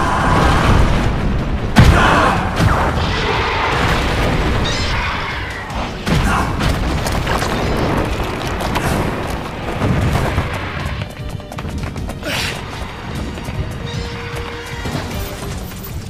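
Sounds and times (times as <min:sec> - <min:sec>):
heavy booms and crashes: 0:00.0 - 0:11.2
dramatic background music: 0:00.0 - 0:16.0.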